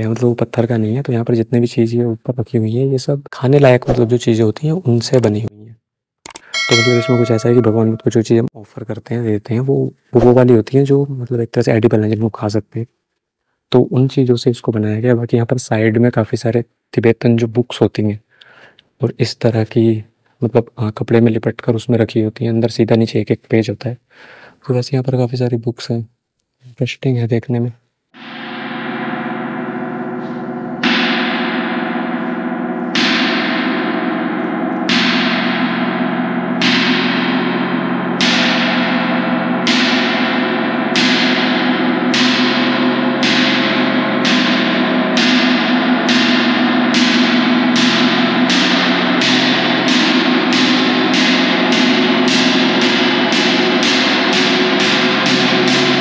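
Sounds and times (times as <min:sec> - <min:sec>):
gong struck with mallet: 0:06.6 - 0:08.2, 0:28.2 - 0:56.0.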